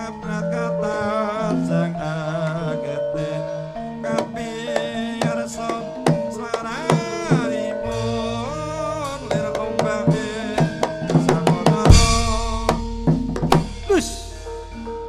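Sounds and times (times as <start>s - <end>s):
ringing metallophone notes: 0.0s - 15.0s
hand drum strokes: 9.0s - 15.0s
deep gong stroke: 11.9s - 15.0s.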